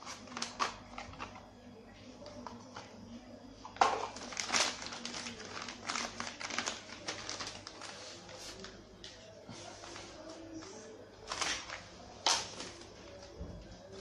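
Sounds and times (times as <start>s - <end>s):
plastic packaging crinkling: 0.0s - 1.4s, 3.7s - 9.3s, 11.2s - 13.3s.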